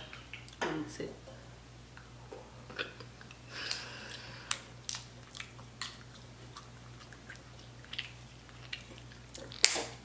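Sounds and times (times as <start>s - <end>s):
wet squishing while eating: 3.2s - 10.0s.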